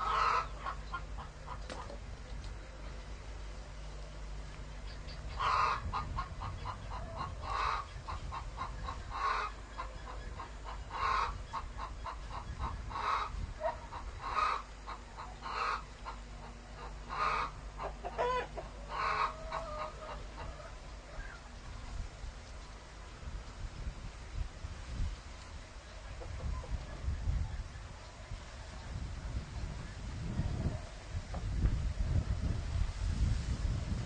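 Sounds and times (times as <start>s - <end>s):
chicken clucking and squawking: 0.0s - 2.0s, 4.8s - 21.6s, 25.9s - 27.9s.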